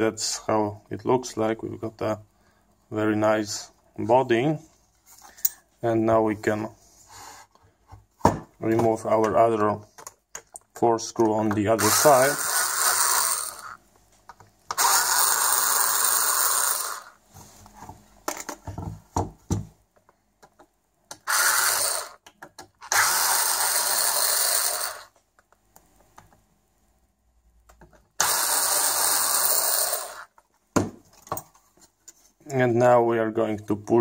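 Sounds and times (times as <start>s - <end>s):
electric screwdriver running: 11.8s - 13.8s, 14.7s - 17.2s, 21.2s - 22.2s, 22.9s - 25.1s, 28.2s - 30.3s.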